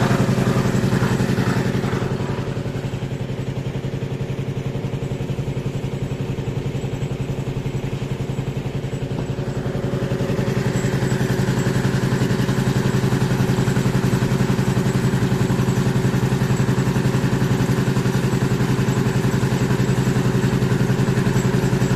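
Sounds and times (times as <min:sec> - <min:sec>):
concrete mixer engine chugging: 0:00.0 - 0:21.9.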